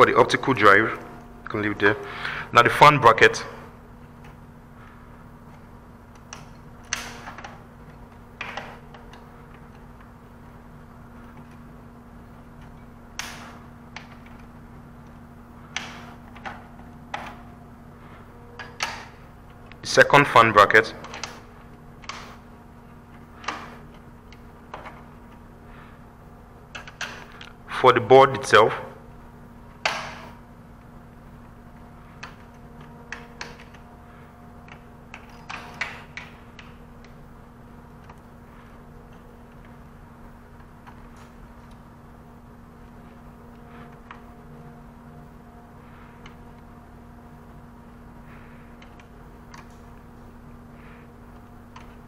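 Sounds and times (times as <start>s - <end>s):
low hum: 0.0s - 52.0s
cable connectors clicking: 4.0s - 19.9s, 20.7s - 25.8s, 26.6s - 27.6s, 29.7s - 42.2s, 48.2s - 52.0s.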